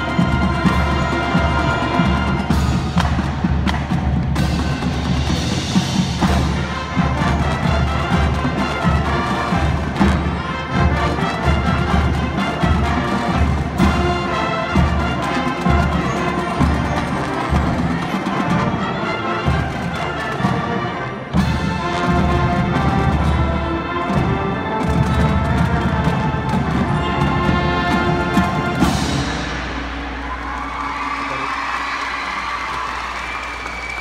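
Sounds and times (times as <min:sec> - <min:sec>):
marching band brass: 0:00.0 - 0:34.0
marching drums: 0:00.0 - 0:34.0.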